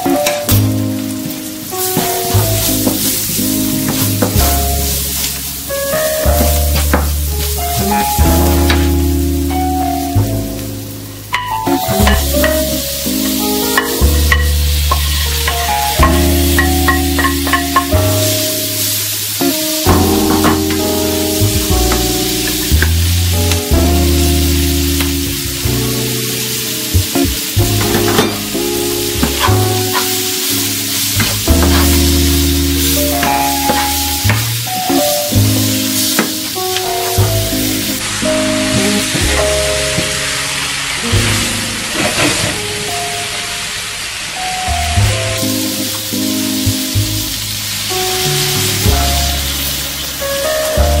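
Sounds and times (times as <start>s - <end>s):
background music: 0.0s - 51.0s
food sizzling in a pan: 0.0s - 51.0s
spatula scraping a pan: 31.2s - 32.2s.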